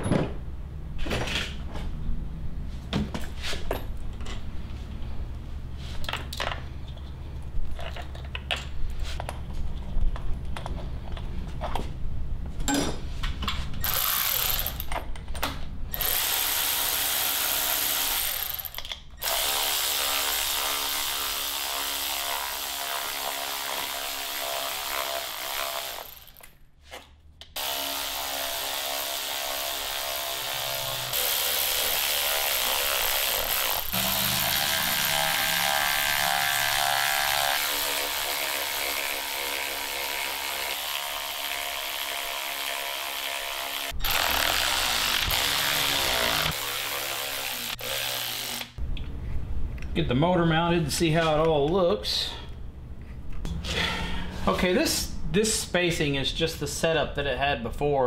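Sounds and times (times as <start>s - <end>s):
parts knocking and clicking: 6.0s - 11.9s
cordless electric ratchet running: 13.8s - 14.8s, 27.6s - 36.4s.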